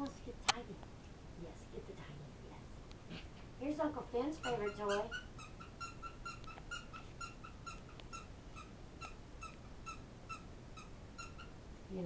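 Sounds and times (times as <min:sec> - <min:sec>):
high chirping squeaks: 0:04.4 - 0:11.6.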